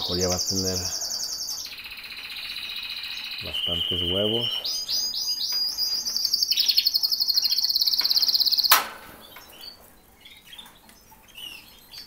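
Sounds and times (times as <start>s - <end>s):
canary trilling: 0.0s - 12.0s
soft bird chirps: 0.0s - 12.0s
sharp click: 8.0s - 9.5s.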